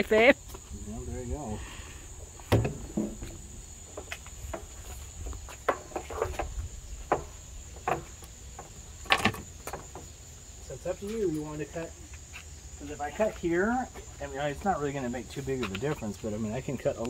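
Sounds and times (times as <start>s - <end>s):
crickets chirring: 0.0s - 17.0s
knocks and thumps: 2.4s - 10.2s.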